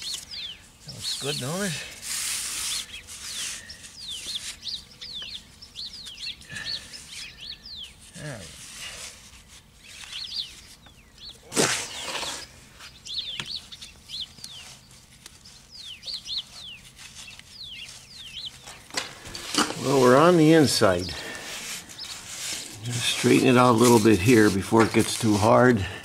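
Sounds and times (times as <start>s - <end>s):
small birds chirping: 0.0s - 26.0s
wet cement rubbing: 19.2s - 25.7s.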